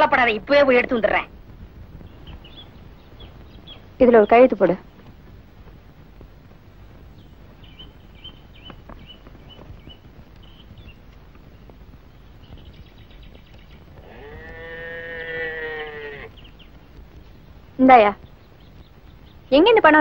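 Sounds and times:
cow mooing: 14.0s - 16.3s.

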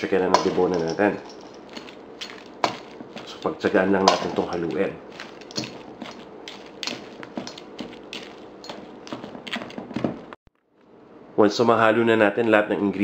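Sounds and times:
utensil scraping a bowl: 4.2s - 10.0s.

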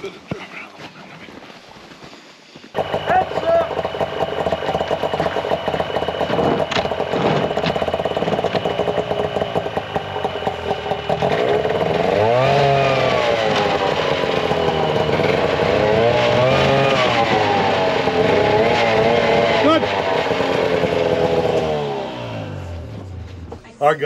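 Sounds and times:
sharp knocks: 2.8s - 11.6s
vehicle engine revving: 2.8s - 23.6s.

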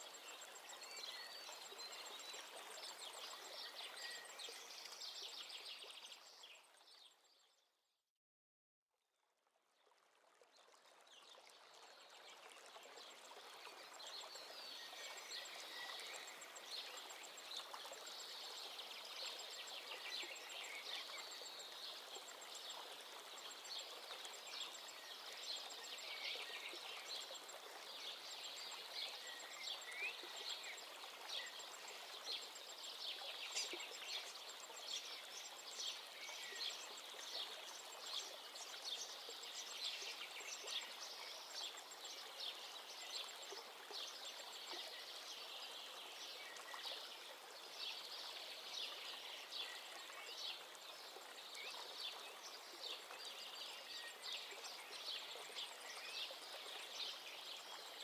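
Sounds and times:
small waves lapping: 9.8s - 58.0s
birds chirping and twittering: 23.5s - 47.1s.

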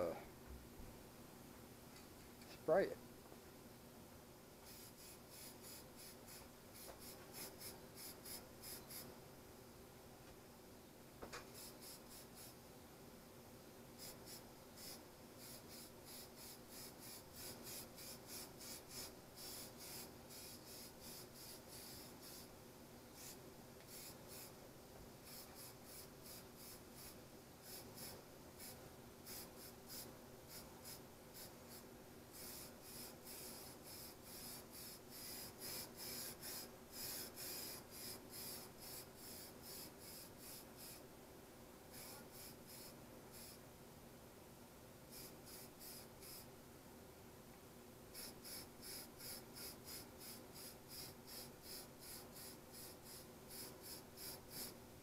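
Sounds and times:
steady low hum: 0.0s - 55.0s
spray-paint can hissing: 4.6s - 9.1s, 11.4s - 12.6s, 14.0s - 22.5s, 23.1s - 24.6s, 25.2s - 41.0s, 41.9s - 43.6s, 45.1s - 46.5s, 48.1s - 54.8s.

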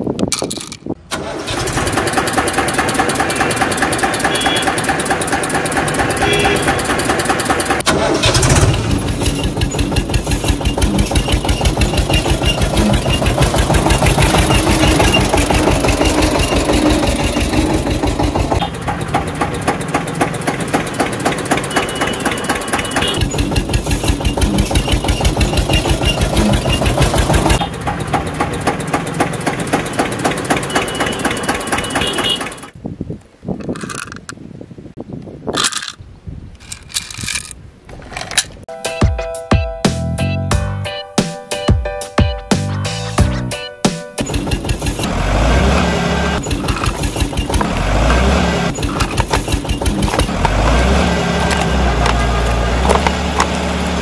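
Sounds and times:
tractor engine chugging: 1.1s - 32.8s, 44.2s - 54.0s.

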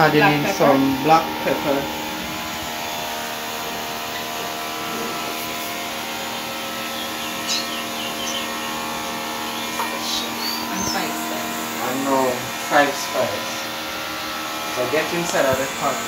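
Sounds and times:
mechanical hum with hiss: 0.0s - 16.0s
faint bird chirps: 6.8s - 8.8s, 9.4s - 11.2s.

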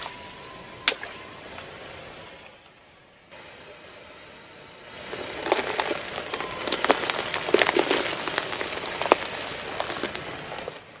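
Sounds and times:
candy shells crunching under tyre: 5.1s - 11.0s.

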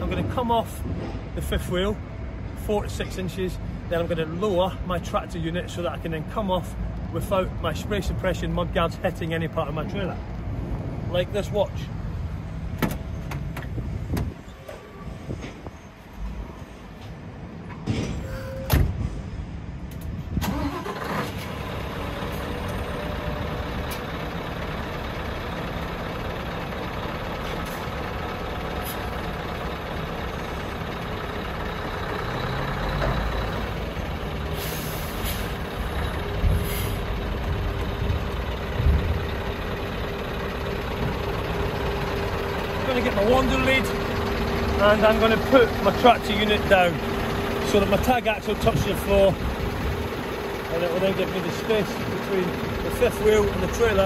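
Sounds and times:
diesel truck engine idling: 19.4s - 54.0s
short air hisses: 34.6s - 35.5s.

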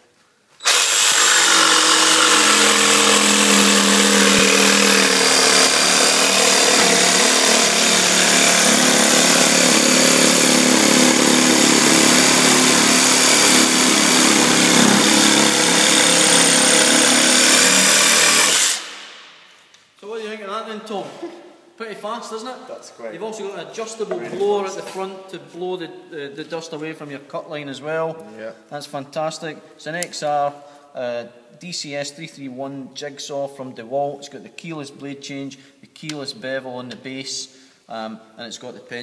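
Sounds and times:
jigsaw cutting through worktop: 0.6s - 19.0s.

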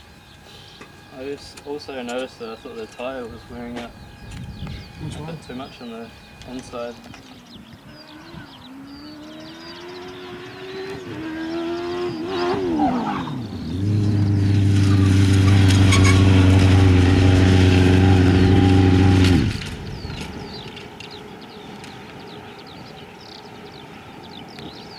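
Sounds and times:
race car engine revving: 7.4s - 20.6s.

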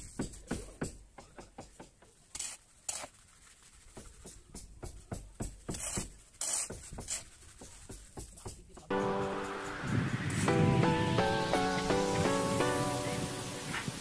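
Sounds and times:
hoe chopping sand and cement: 0.0s - 9.0s, 13.1s - 14.0s.

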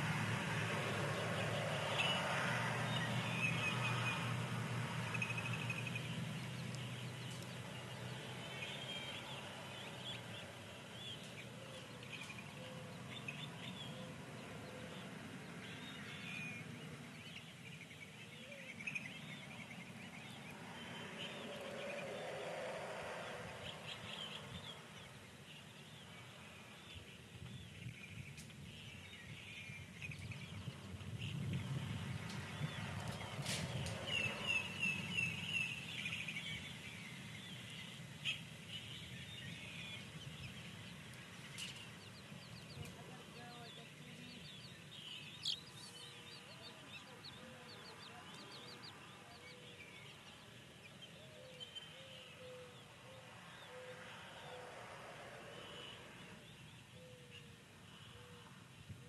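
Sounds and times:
chicks peeping: 39.0s - 52.0s.

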